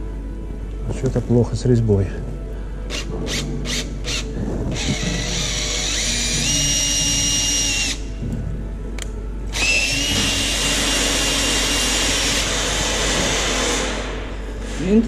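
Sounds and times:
power drill whining: 2.9 - 8.2, 9.5 - 14.2.

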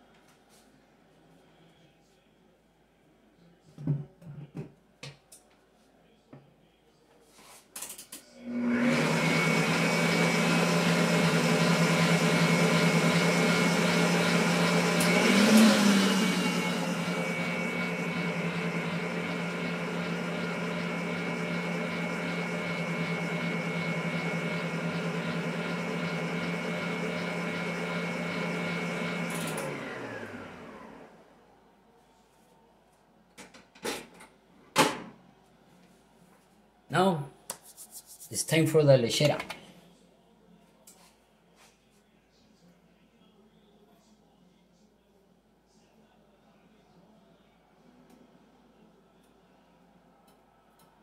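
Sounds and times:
stand mixer motor running: 8.4 - 31.3.

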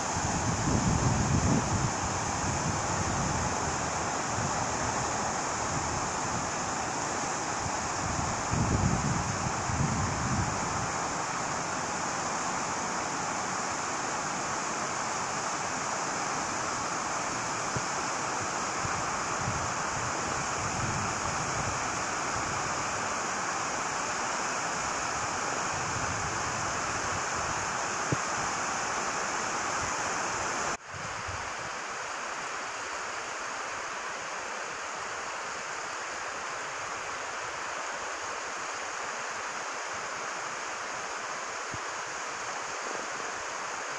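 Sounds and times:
water rushing over weir: 0.0 - 43.9
wind buffeting microphone: 0.2 - 6.5, 7.6 - 11.0.

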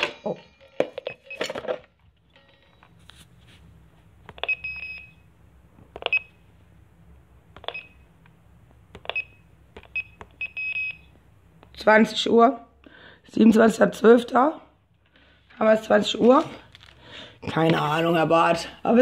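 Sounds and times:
keypad button click and beep: 4.4 - 5.1, 9.0 - 11.0.

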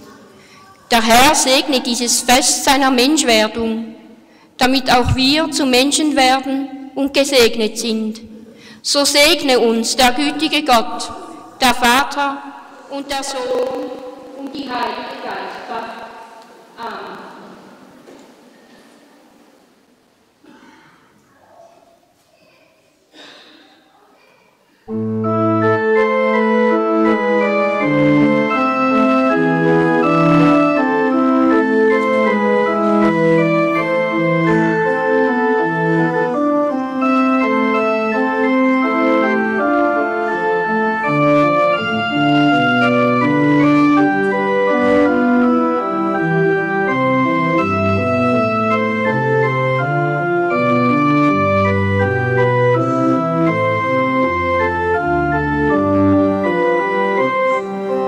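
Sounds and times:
organ playing held chords: 24.9 - 58.0.

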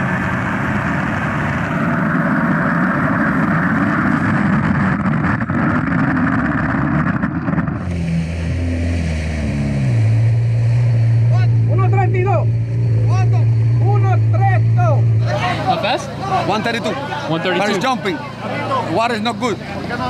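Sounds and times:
jet ski engine: 0.0 - 20.0
wind: 0.0 - 20.0
water spray rushing: 7.8 - 11.7.

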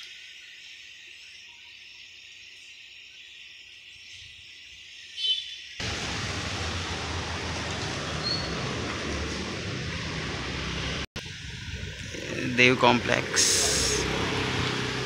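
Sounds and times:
loud steady rushing noise: 5.8 - 15.0.

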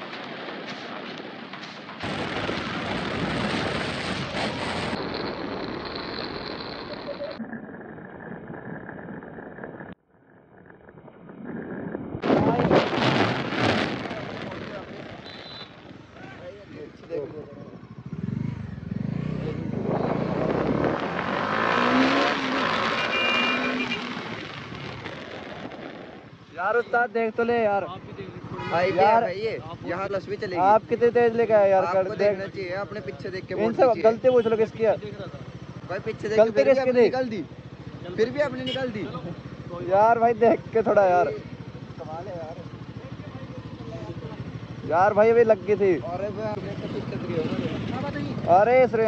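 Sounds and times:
wind rushing over microphone: 0.0 - 15.2, 17.2 - 22.2
motorcycle engine: 2.0 - 12.7, 13.9 - 49.0.

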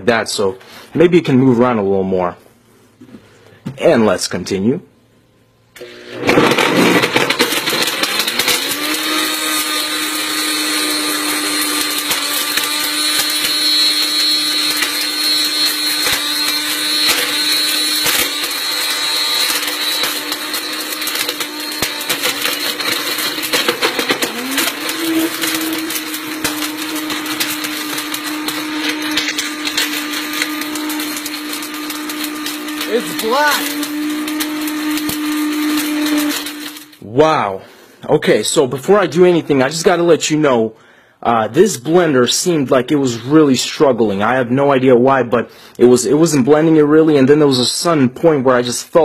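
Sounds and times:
blender motor running: 5.8 - 37.0
phone pieces grinding in blender jar: 6.2 - 37.0.

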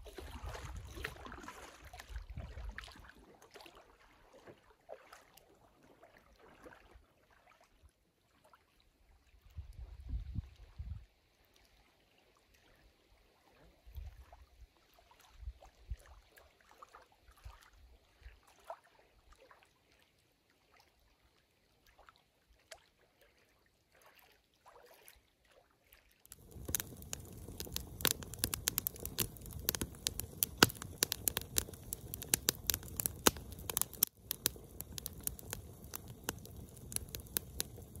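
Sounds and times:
small waves lapping at shore: 0.0 - 8.6, 14.8 - 35.9
wind bumps on microphone: 9.6 - 11.0
campfire crackling and popping: 26.3 - 38.0.

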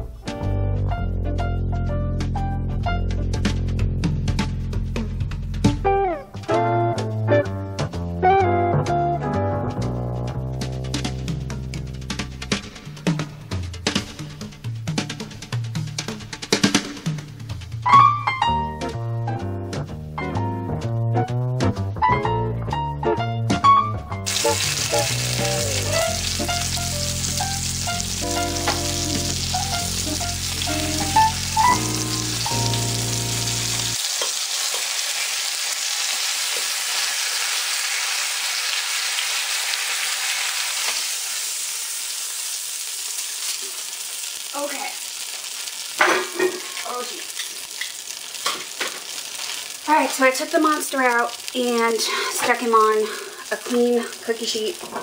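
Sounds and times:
background music: 0.0 - 34.0
meat sizzling in a pot: 24.2 - 55.0.

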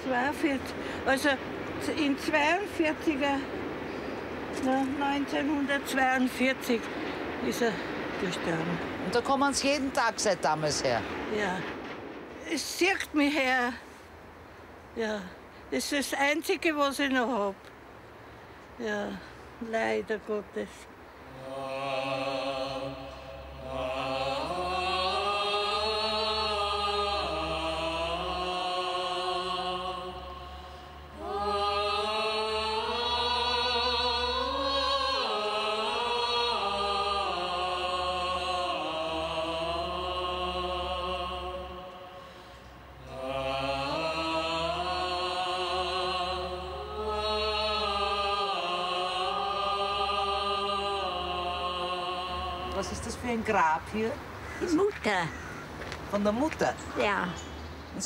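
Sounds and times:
chant-like vocal music: 0.0 - 9.0, 21.0 - 54.4.

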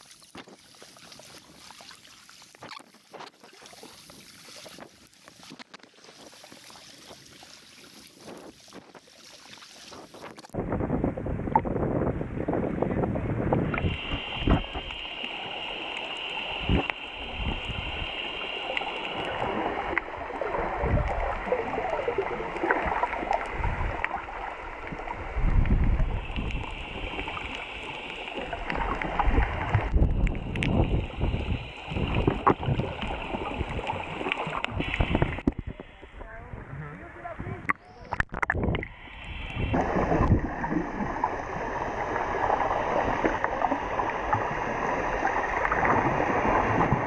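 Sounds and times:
water sloshing underwater: 0.0 - 47.0.

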